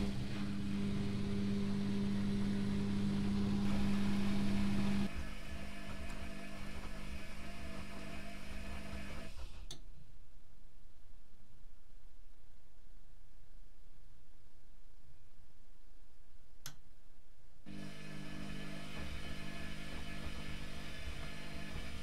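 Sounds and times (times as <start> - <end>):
washing machine mains hum: 0.0 - 9.8, 17.7 - 22.0.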